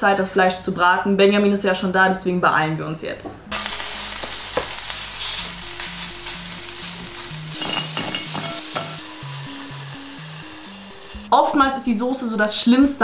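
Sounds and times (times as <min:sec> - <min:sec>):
soft background music: 0:00.0 - 0:13.0
chicken sizzling in a pan: 0:03.5 - 0:11.3.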